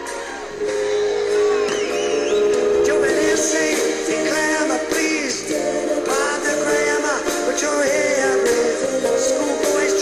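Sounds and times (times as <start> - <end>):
instrumental music with steady beat: 0.0 - 10.0
person singing: 2.6 - 10.0.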